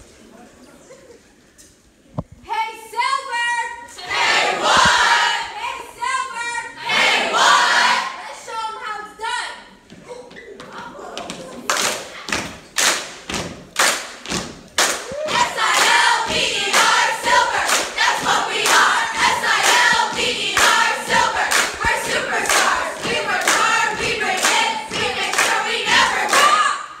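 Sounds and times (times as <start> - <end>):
teenagers chanting in unison: 4.0 - 5.6, 6.8 - 8.2, 15.3 - 27.0
steady clapping: 11.2 - 26.7.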